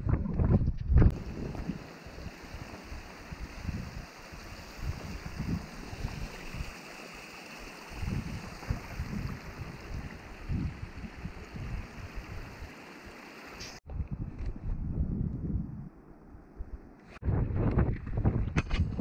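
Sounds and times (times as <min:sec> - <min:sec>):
wind gusting on microphone: 0:00.0 - 0:06.8, 0:07.7 - 0:12.8, 0:13.8 - 0:19.0
stream running over rocks: 0:01.1 - 0:13.8.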